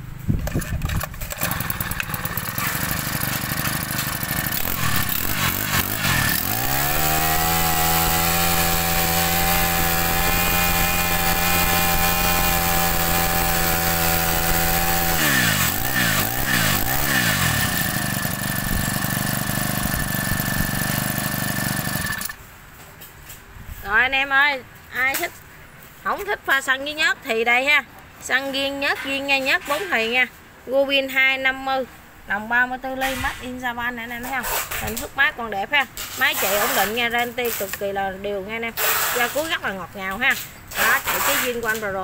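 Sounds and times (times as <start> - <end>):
brush cutter engine revving: 0.3 - 22.4, 36.0 - 37.1, 40.3 - 41.9.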